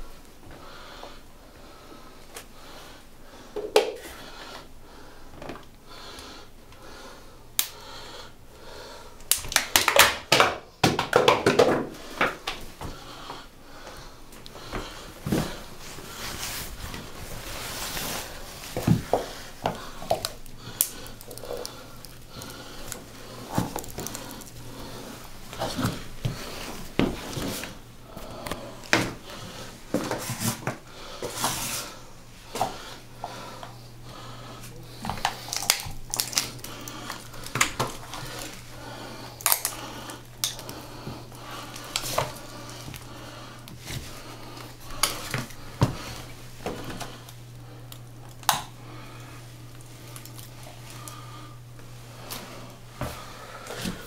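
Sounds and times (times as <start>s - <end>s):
plastic cup crunching: 18.0s - 27.4s, 35.1s - 40.8s
boots stomping on tile floor: 18.7s - 20.2s.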